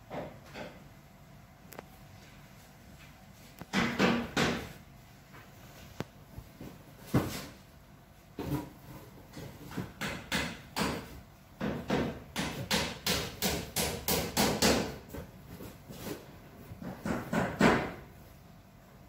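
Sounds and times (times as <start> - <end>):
sharp knocks: 3.7 - 4.7.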